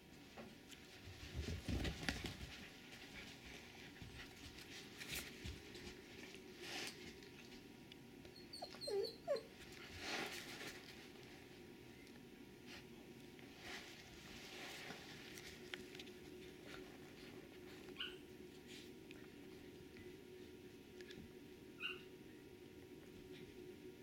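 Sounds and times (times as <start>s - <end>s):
animals rustling on carpet: 0.1s - 7.8s, 9.5s - 11.9s, 12.6s - 21.4s
dog whimpering: 8.4s - 9.5s.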